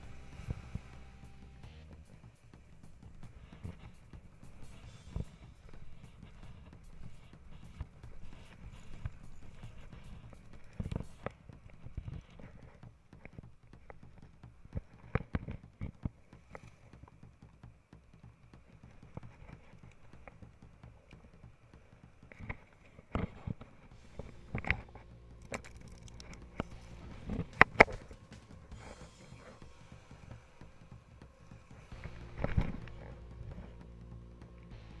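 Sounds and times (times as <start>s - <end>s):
sharp clicks and knocks: 22.2s - 29.6s.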